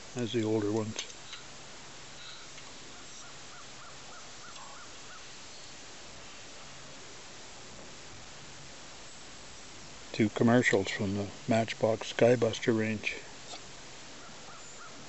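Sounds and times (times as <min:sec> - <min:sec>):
distant bird calling: 0:00.0 - 0:06.4, 0:12.1 - 0:15.0
faint background hiss: 0:00.0 - 0:15.0.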